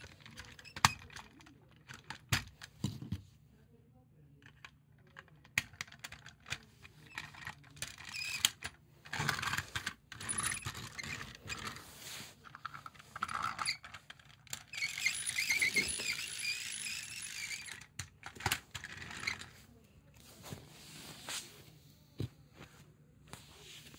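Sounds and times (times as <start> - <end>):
plastic toy parts clicking: 0.0 - 2.6, 4.4 - 11.7, 12.5 - 19.5.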